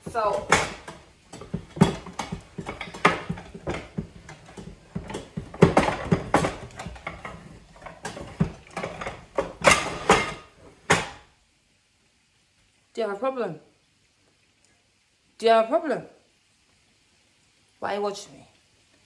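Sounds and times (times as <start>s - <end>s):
plates and dishes clattering: 0.0s - 11.2s.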